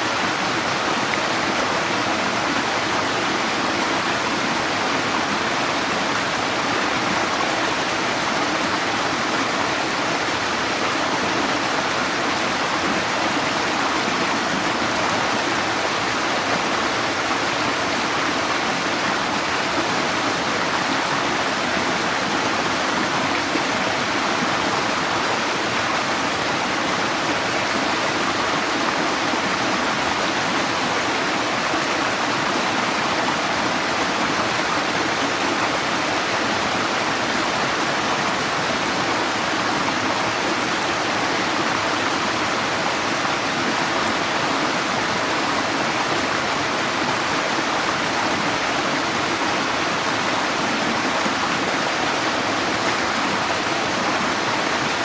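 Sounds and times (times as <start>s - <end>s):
creek pouring over boulders: 0.0s - 55.0s.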